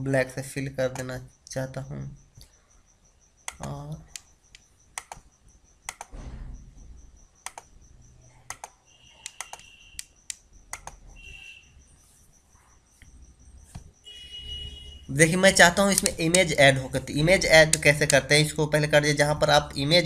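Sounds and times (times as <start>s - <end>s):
computer mouse clicking: 3.5s - 5.3s, 5.9s - 6.2s, 7.4s - 7.7s, 8.5s - 11.0s, 15.9s - 16.5s, 17.6s - 18.2s.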